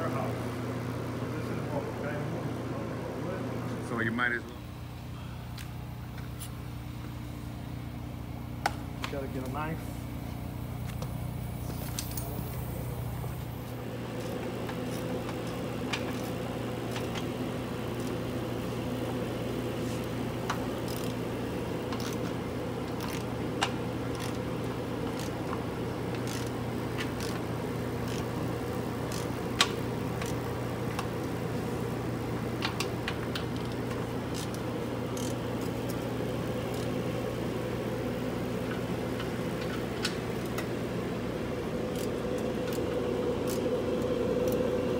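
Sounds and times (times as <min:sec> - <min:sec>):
machine hum: 0:00.0 - 0:44.9
hand tools clicking and clinking: 0:22.9 - 0:24.4.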